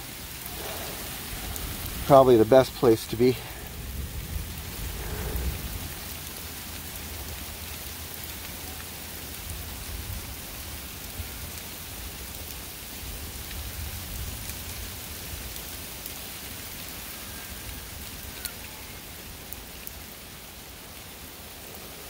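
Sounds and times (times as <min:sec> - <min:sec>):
hailstones ticking: 0:00.0 - 0:22.0
heavy rain hissing: 0:00.0 - 0:22.0
low rumble: 0:00.3 - 0:02.5, 0:03.1 - 0:07.4.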